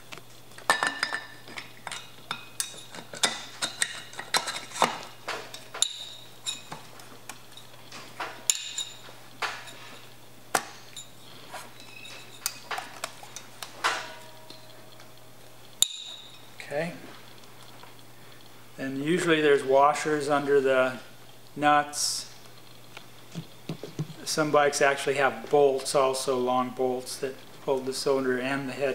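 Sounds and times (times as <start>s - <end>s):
metal clinks and knocks: 0.7s - 11.2s, 11.8s - 15.2s, 15.8s - 16.6s
ringing metal clink: 15.8s - 16.5s.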